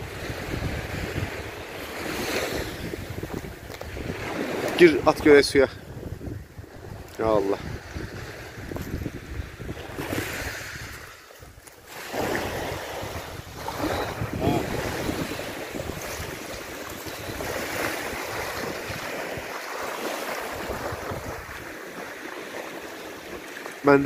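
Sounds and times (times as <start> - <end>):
small waves breaking on shore: 0.0 - 24.0
wind on microphone: 0.0 - 24.0
water splashing around wading legs: 9.8 - 24.0.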